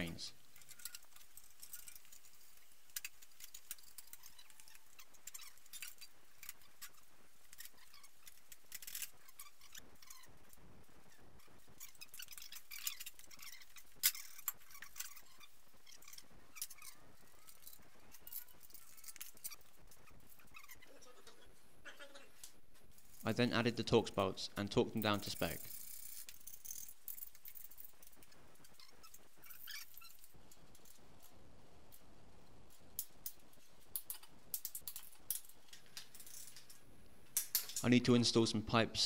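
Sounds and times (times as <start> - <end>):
light metal clicks and scrapes: 0.4 - 21.4.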